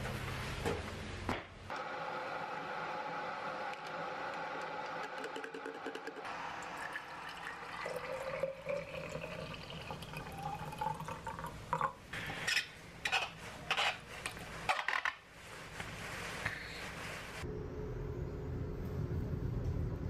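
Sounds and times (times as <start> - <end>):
water pouring into metal tumbler: 4.7 - 11.6.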